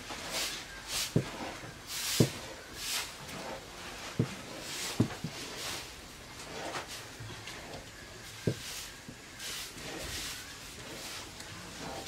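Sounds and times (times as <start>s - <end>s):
wooden stick scraping wok: 0.0s - 12.0s
stick thumping dough: 2.2s - 2.4s.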